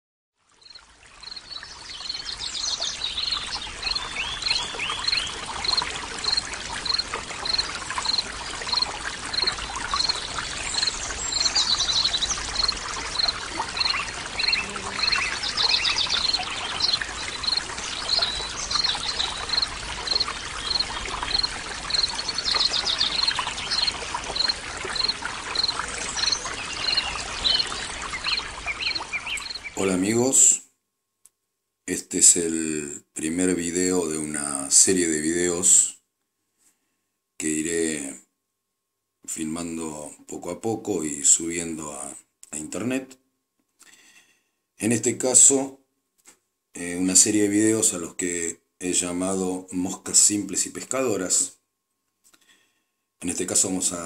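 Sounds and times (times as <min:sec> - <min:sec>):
running stream: 0:00.4 - 0:30.5, 0:46.8 - 0:51.6, 0:53.2 - 0:54.0
birds chirping: 0:00.6 - 0:30.2.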